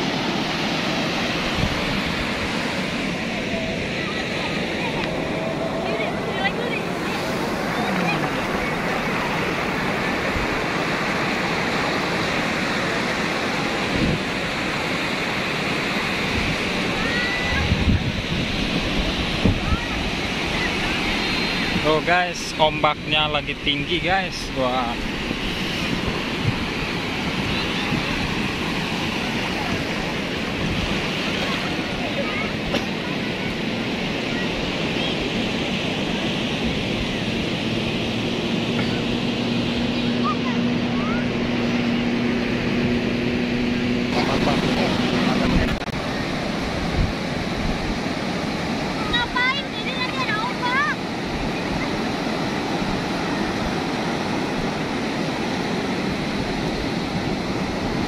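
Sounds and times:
waves breaking on sandy beach: 0:00.0 - 0:58.0
wind buffeting microphone: 0:16.1 - 0:21.9, 0:25.0 - 0:32.7, 0:33.5 - 0:58.0.

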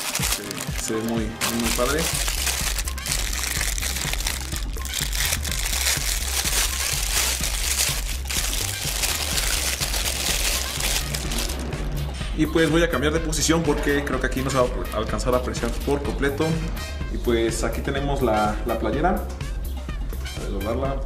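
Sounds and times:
plastic bag crinkling: 0:00.0 - 0:11.8
bass beat background music: 0:00.0 - 0:21.0.

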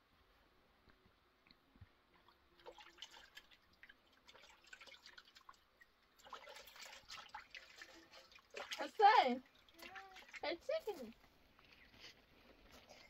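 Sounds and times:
water drips and splashes: 0:01.5 - 0:11.3.

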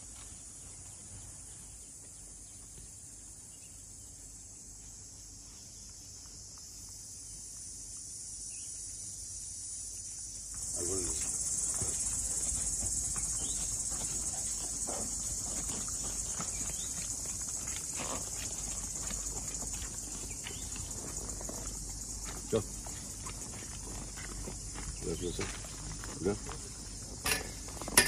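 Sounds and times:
high-pitched insect chorus: 0:00.0 - 0:28.0.

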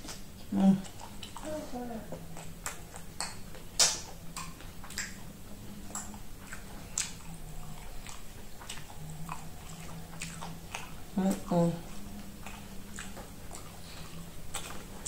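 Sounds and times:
person chewing corn: 0:00.0 - 0:15.0.

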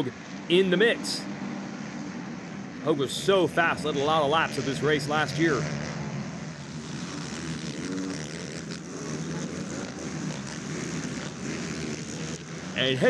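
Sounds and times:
quad engines revving: 0:00.0 - 0:13.0.

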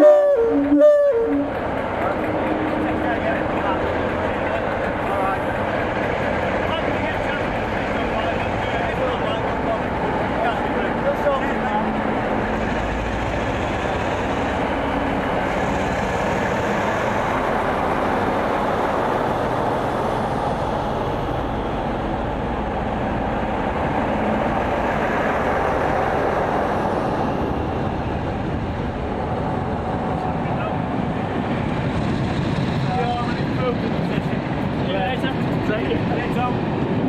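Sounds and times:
diesel locomotive engines droning: 0:00.0 - 0:37.0
train coaches rolling past: 0:00.0 - 0:37.0.

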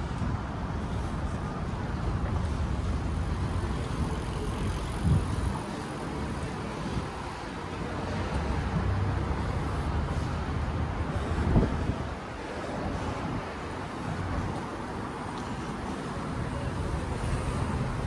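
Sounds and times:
wind rumbling on microphone: 0:00.0 - 0:07.5, 0:08.4 - 0:15.2
road traffic: 0:00.0 - 0:18.0.

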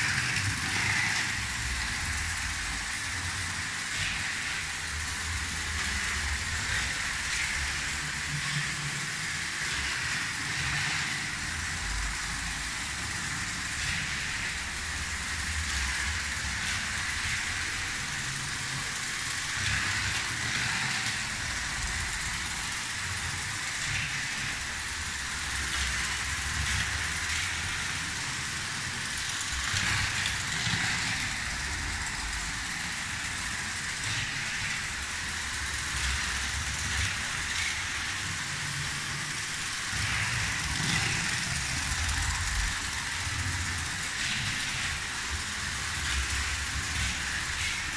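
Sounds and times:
toy train motor whirring: 0:00.0 - 0:47.9
wheels rolling on track: 0:00.0 - 0:47.9.

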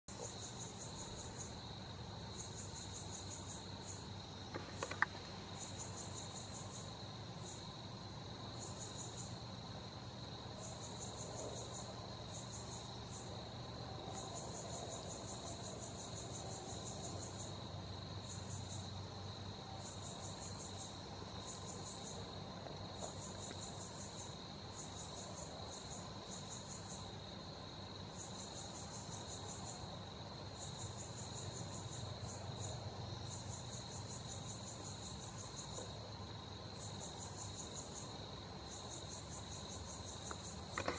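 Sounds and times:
rapid insect chirping: 0:00.0 - 0:40.9
crickets trilling: 0:00.1 - 0:40.9.

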